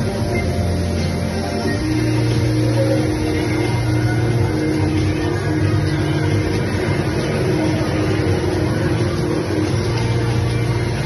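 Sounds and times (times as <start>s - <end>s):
music with held low notes: 0.0s - 11.0s.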